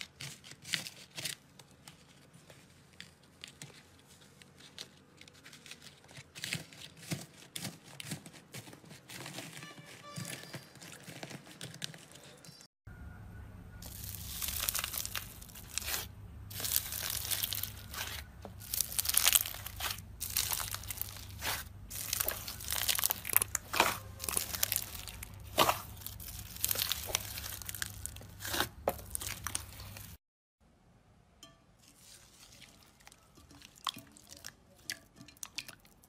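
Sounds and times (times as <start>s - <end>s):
low steady hum: 12.9s - 32.0s
slime squelching and crackling: 13.8s - 30.2s, 31.8s - 36.0s.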